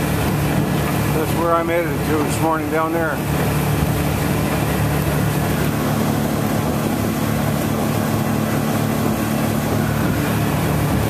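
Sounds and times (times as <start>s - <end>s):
boat engine running: 0.0s - 11.0s
wind and water rushing: 0.0s - 11.0s.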